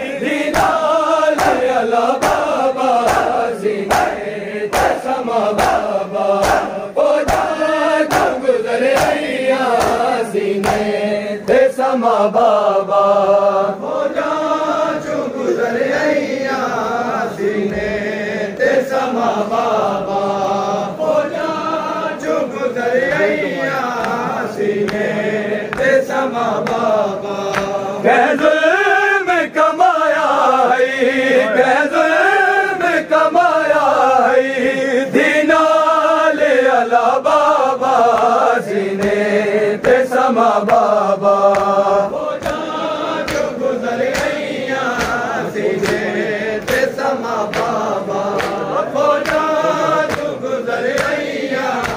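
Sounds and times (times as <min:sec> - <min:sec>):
men chanting a lament: 0:00.0 - 0:51.9
chest-beating slaps: 0:00.4 - 0:11.8, 0:23.0 - 0:27.8, 0:39.0 - 0:51.9.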